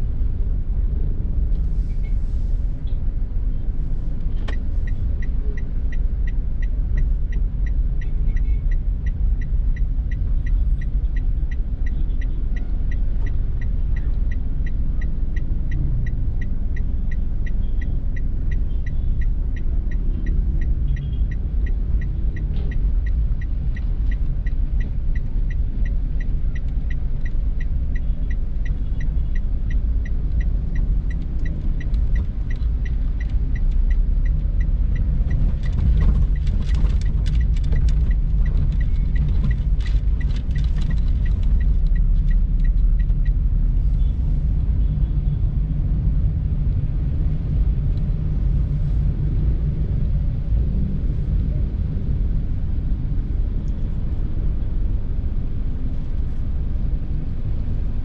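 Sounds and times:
car engine and road rumble: 0.0s - 58.0s
light regular ticking: 4.1s - 49.1s
crackling clicks: 29.7s - 43.4s.

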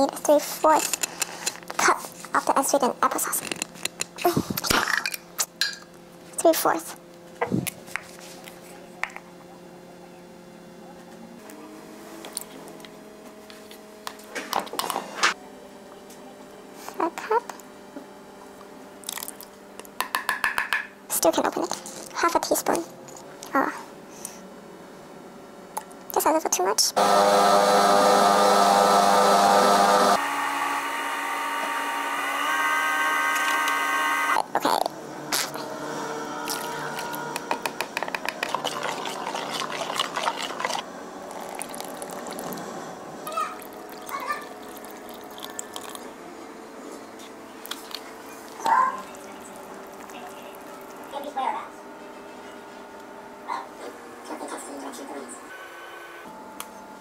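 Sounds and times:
espresso machine humming: 27.0s - 46.7s, 48.0s - 51.3s
cup scooping applesauce squishes: 38.2s - 42.6s, 47.2s - 51.1s.

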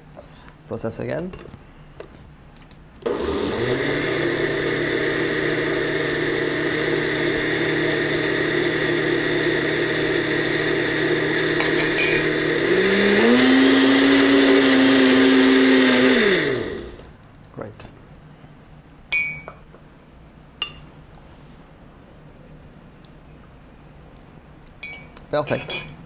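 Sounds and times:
blender motor running: 3.0s - 17.1s.

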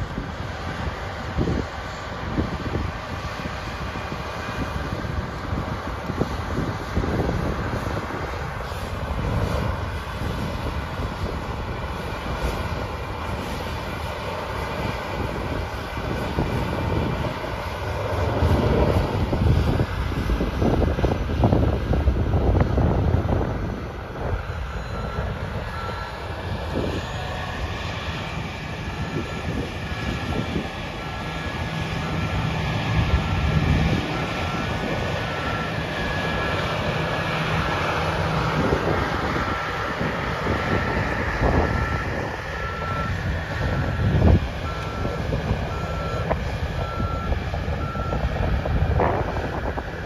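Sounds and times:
wind buffeting microphone: 0.0s - 50.0s
backup alarm beeping: 24.4s - 27.2s, 41.1s - 48.3s.

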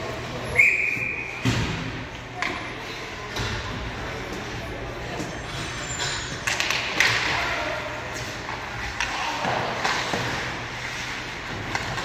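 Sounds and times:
hockey sticks clacking on puck: 5.2s - 12.0s
skate blades scraping ice: 8.1s - 12.0s.

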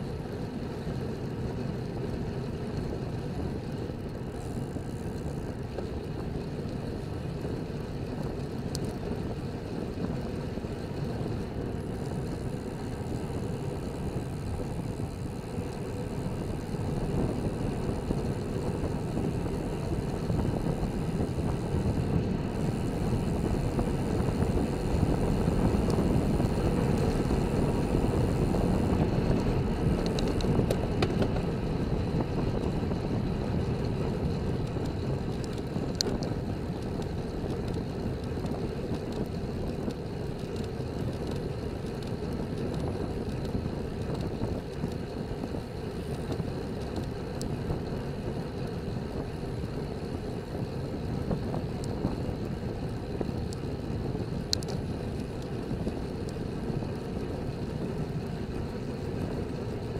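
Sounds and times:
bicycle tyre noise: 0.0s - 59.9s
wind rush on microphone: 0.0s - 59.9s
faint clicks: 54.5s - 54.8s.

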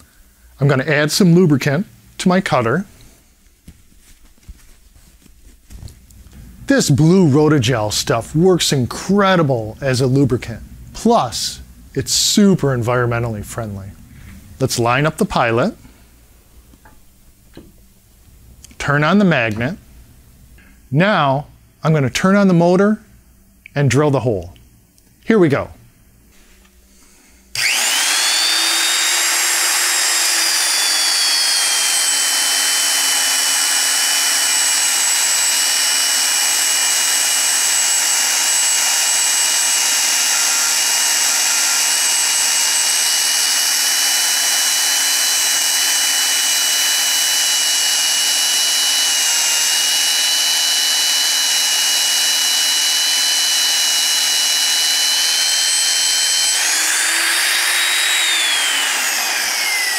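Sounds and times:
magnetic drill motor whine: 27.5s - 59.9s.

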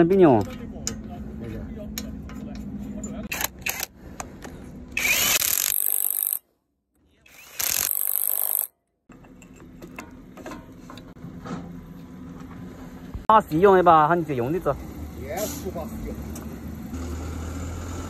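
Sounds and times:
impact wrench hammering bolts: 5.0s - 6.4s, 7.5s - 8.7s
clinks of metal parts: 7.6s - 11.1s.

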